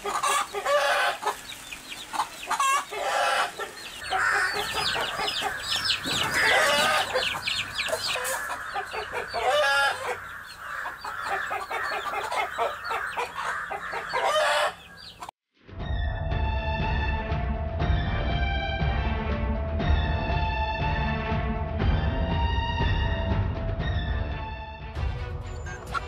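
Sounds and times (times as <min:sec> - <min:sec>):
chicks peeping: 0:00.0 - 0:15.3
hen clucking: 0:00.0 - 0:15.3
music: 0:15.5 - 0:26.0.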